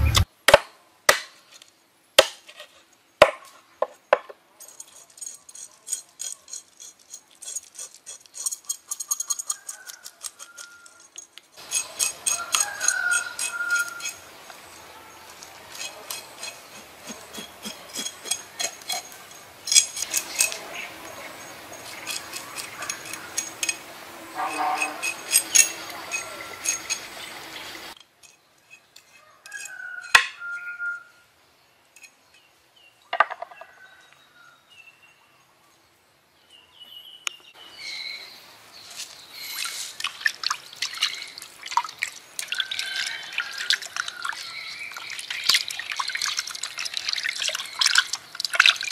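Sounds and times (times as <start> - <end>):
knife scraping fish on board: 15.7 - 19.1
water sloshing and splashing: 39.6 - 48.9.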